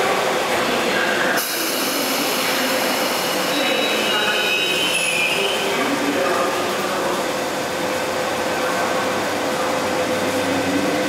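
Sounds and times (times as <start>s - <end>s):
train noise: 0.0s - 11.0s
hiss: 1.4s - 4.1s
high-pitched wheel squeal: 3.5s - 5.8s.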